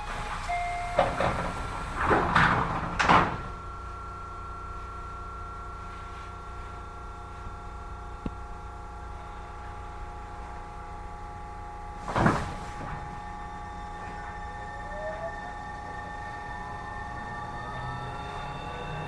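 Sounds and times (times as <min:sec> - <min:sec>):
train sliding doors closing: 0:00.0 - 0:03.7, 0:11.9 - 0:19.0
stopped train car humming: 0:00.0 - 0:19.0.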